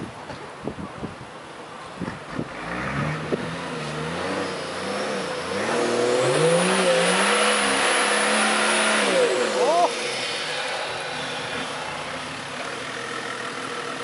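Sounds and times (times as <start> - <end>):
truck engine revving: 2.4 - 14.0.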